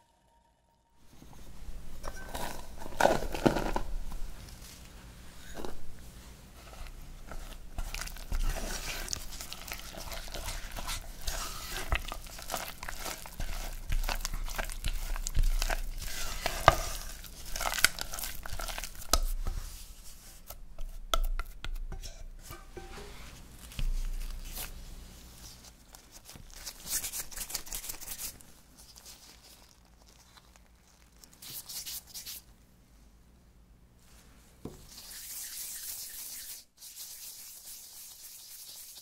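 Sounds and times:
spatula scraping dough in pot: 0:06.6 - 0:24.8.

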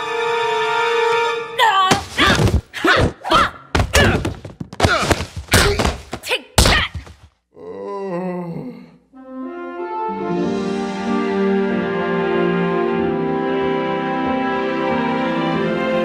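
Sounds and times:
cartoon punches thumping: 0:01.9 - 0:07.3
brass music cue: 0:09.2 - 0:16.0.

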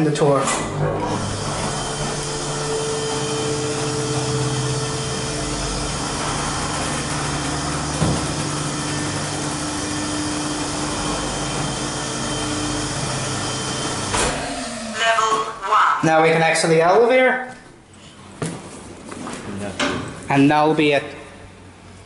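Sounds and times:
lift motor humming: 0:00.4 - 0:15.3.

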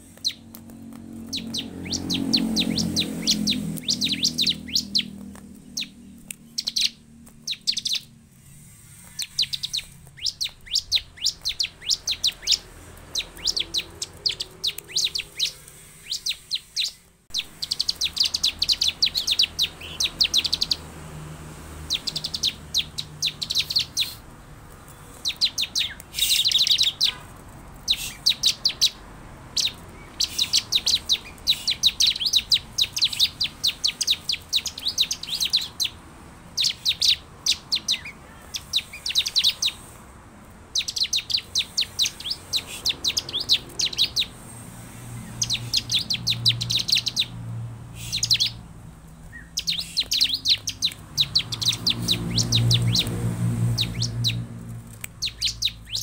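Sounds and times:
bird calling sharp high notes: 0:01.1 - 0:20.8, 0:25.0 - 0:39.9.

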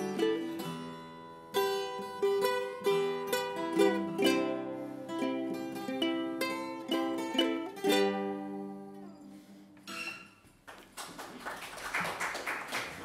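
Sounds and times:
acoustic guitar and ukulele playing: 0:00.0 - 0:10.4
audience applauding: 0:10.6 - 0:13.0.

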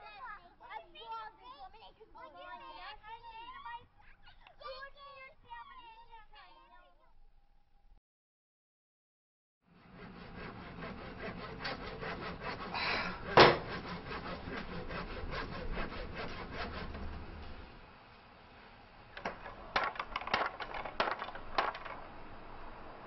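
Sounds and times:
wood sawn by hand: 0:09.7 - 0:17.7, 0:19.2 - 0:22.4
sharp knocks: 0:13.3 - 0:13.8, 0:19.2 - 0:22.1.

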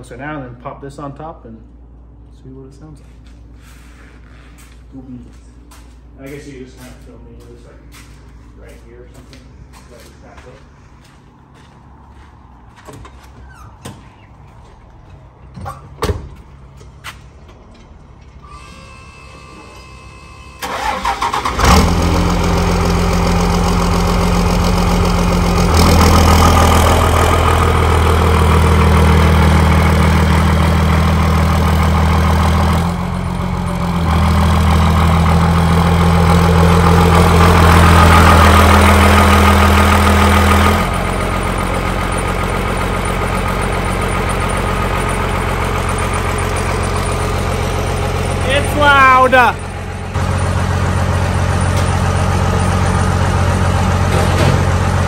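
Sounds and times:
pickup truck engine running: 0:20.6 - 0:55.0.

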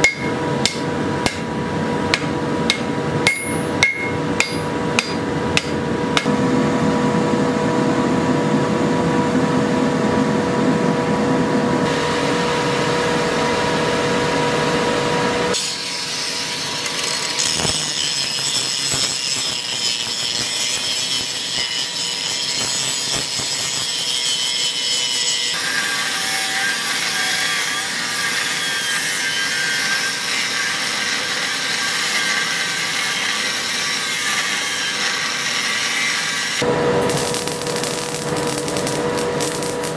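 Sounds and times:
power tool grinding steel: 0:15.5 - 0:39.9.

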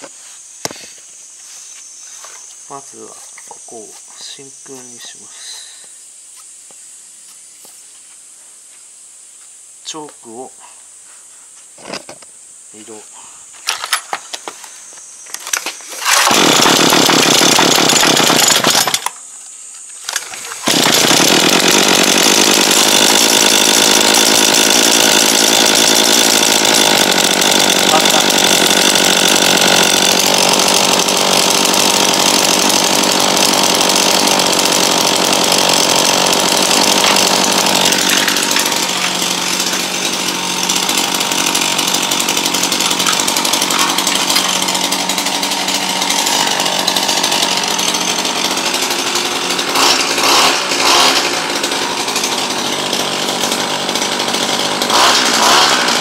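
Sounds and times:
brush cutter engine running: 0:15.4 - 0:19.2, 0:20.0 - 0:56.0.

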